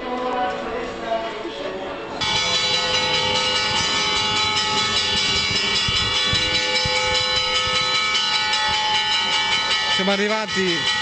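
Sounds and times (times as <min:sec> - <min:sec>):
church bells ringing a peal: 0:02.2 - 0:11.0.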